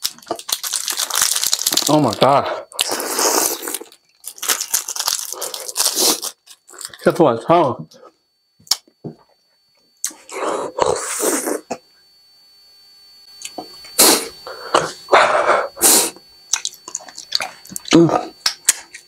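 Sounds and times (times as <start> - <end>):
man sniffling: 14.0 - 16.2
man breathing heavily: 14.4 - 16.2.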